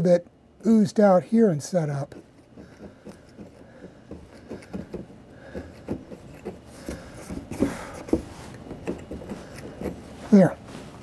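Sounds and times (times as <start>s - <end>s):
knife scraping glue off wood: 2.1s - 10.0s.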